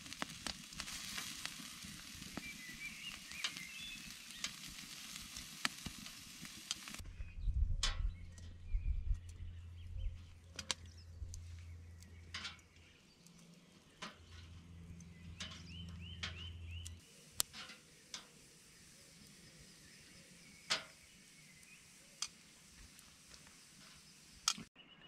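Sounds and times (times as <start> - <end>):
faint low rumble: 7.0 - 17.0
tongs clicking on grill grate: 10.4 - 18.5, 20.7 - 21.0, 22.2 - 24.6.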